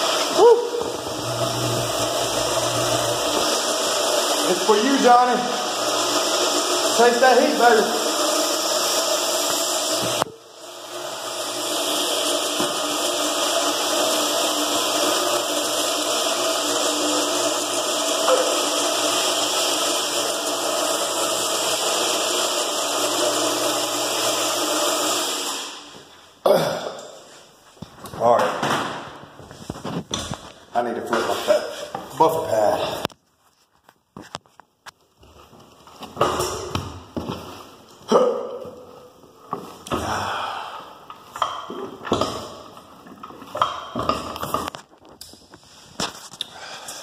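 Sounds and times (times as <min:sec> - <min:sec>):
floor buffer motor running: 0:00.0 - 0:26.2, 0:29.4 - 0:33.1, 0:35.2 - 0:44.8
man breathing hard: 0:40.0 - 0:41.0, 0:46.4 - 0:47.0.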